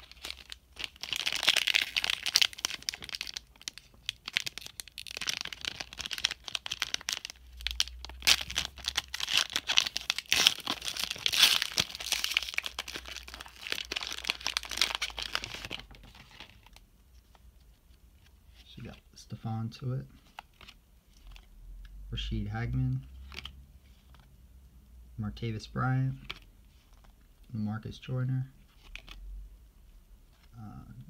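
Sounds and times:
foil pack crinkling and tearing: 0:00.0 - 0:16.8.

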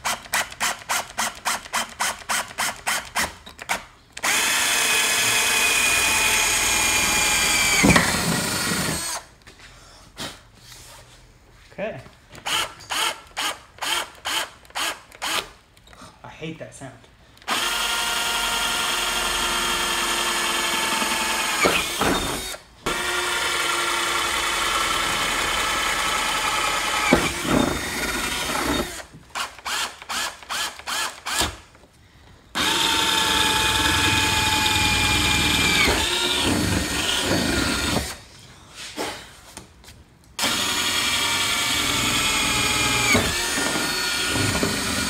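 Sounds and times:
power drill motor whine: 0:04.2 - 0:09.3, 0:17.5 - 0:31.5, 0:32.6 - 0:38.2, 0:40.4 - 0:45.0.

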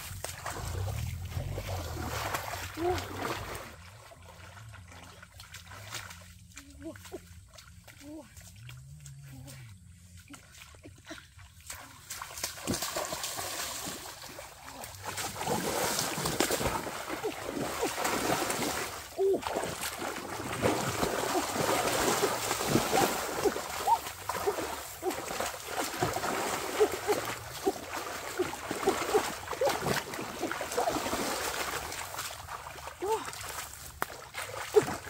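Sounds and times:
water splashing and churning: 0:00.0 - 0:35.0
sharp slaps on water: 0:12.3 - 0:13.4, 0:33.9 - 0:35.0.

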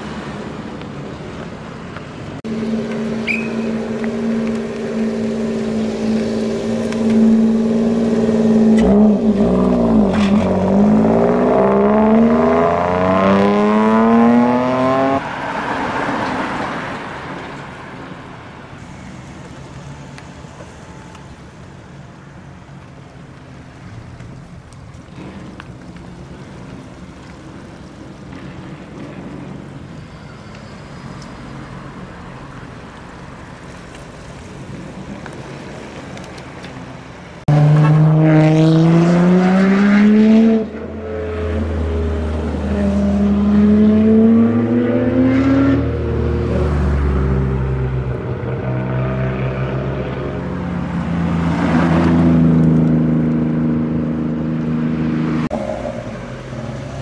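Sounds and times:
car engines running: 0:00.0 - 0:57.0
loud exhaust revving: 0:02.4 - 0:15.2, 0:37.5 - 0:50.5.

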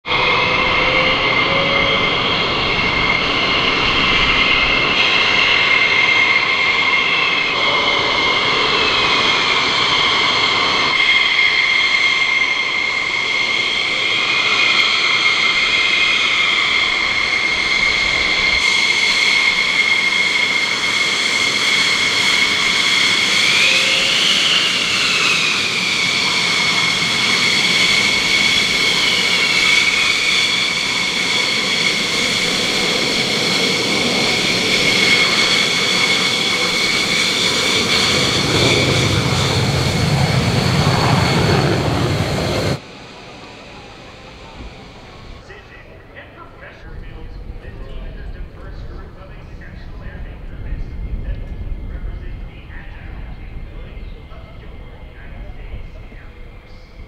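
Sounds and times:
jet engines whining: 0:00.0 - 0:57.0
rising and falling jet whine: 0:00.0 - 0:57.0.

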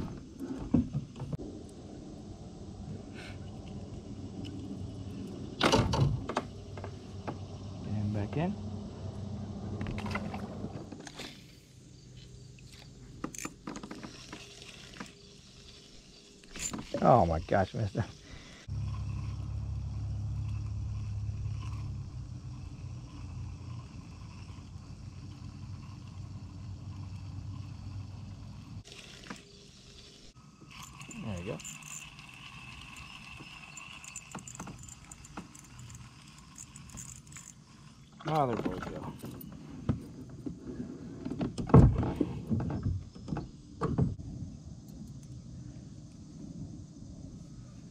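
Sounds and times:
fishing reel whirring: 0:12.1 - 0:17.2, 0:18.3 - 0:38.4
sharp reel clicks: 0:18.6 - 0:38.4.

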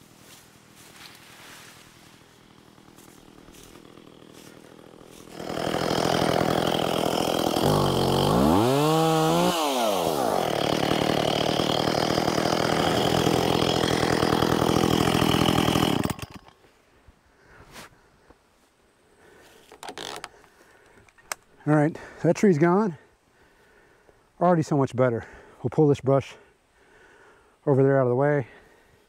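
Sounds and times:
chainsaw idling and revving: 0:01.8 - 0:16.6
chainsaw cutting through tree: 0:01.9 - 0:16.6.

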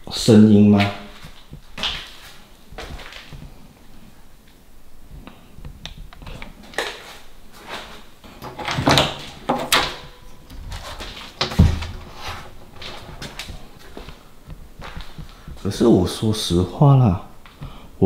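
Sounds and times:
heavy thump: 0:11.4 - 0:12.2.

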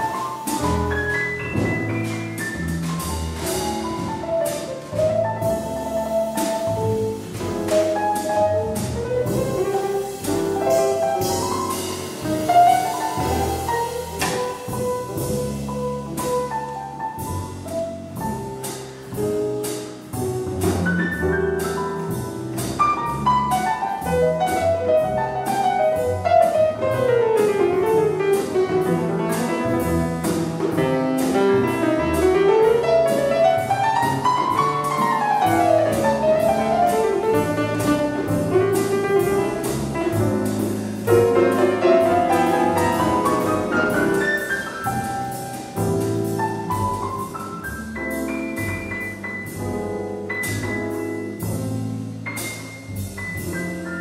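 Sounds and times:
bass notes: 0:00.0 - 0:54.0
jazz piano runs: 0:00.0 - 0:54.0
drum and cymbal strokes: 0:05.5 - 0:16.5.

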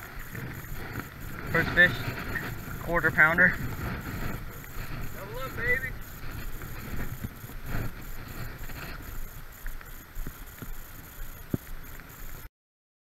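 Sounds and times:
wind rumbling on microphone: 0:00.0 - 0:12.5.

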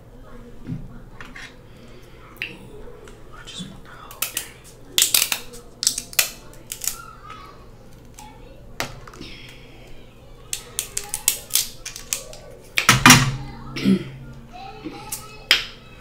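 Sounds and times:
scissors snipping crab shell: 0:05.0 - 0:07.0.

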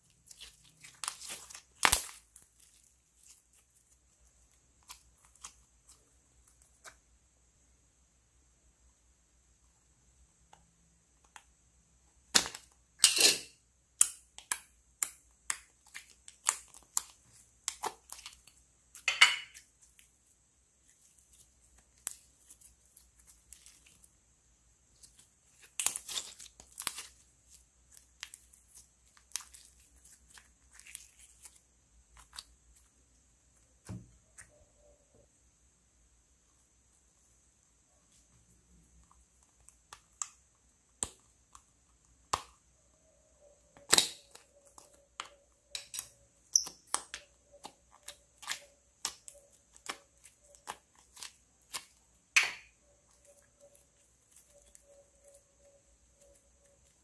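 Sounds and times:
slime squelching and popping: 0:00.0 - 0:07.0.

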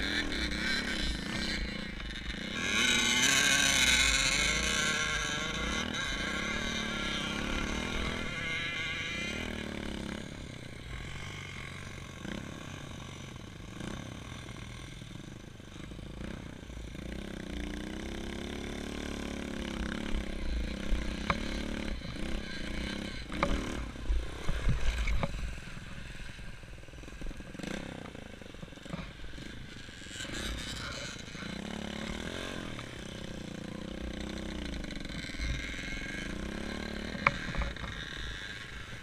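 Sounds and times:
motorcycle engine revving: 0:00.0 - 0:39.0.

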